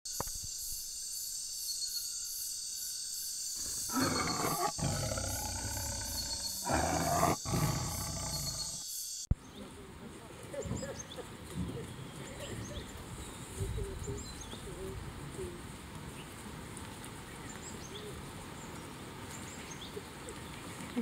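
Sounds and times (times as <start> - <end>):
tiger roaring: 3.6 - 8.8.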